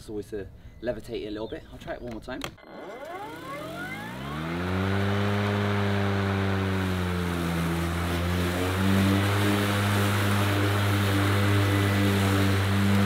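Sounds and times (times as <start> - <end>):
electric lawn mower running: 2.6 - 13.0.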